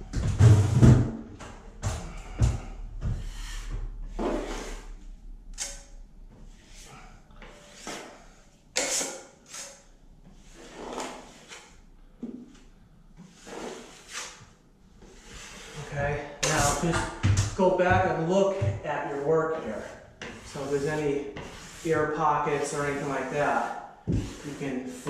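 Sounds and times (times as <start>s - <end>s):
trowel scraping drywall compound: 3.2s - 5.0s, 6.5s - 11.8s, 13.2s - 17.0s, 17.6s - 25.0s.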